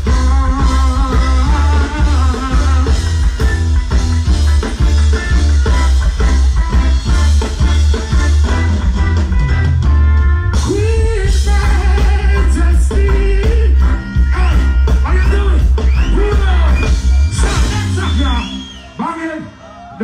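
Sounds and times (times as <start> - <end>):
person singing: 0.0 - 3.2, 10.6 - 15.7
heavy bass line: 0.0 - 18.9
steady drum beat: 0.0 - 19.0
live reggae band playing: 0.0 - 20.0.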